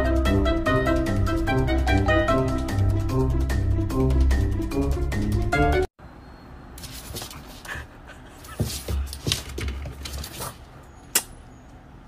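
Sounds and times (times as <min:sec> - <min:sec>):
dog breathing noisily: 0:07.2 - 0:09.1.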